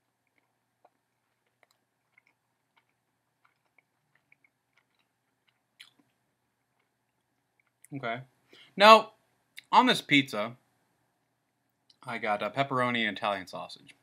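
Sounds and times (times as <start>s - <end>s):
faint chewing: 0.0s - 8.0s
wet mouth clicks and smacks: 0.2s - 7.9s.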